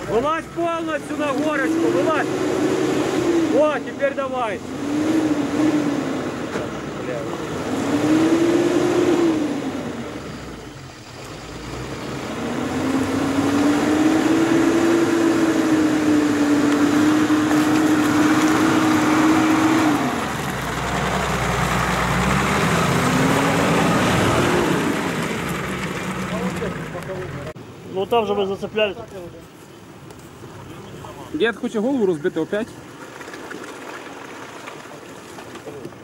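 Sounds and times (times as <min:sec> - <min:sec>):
car engine revving hard: 0:01.1 - 0:27.5.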